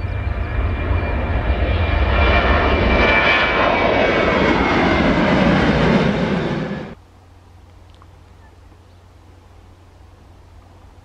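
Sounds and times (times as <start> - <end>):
jet engines roaring at take-off: 0.0 - 7.0.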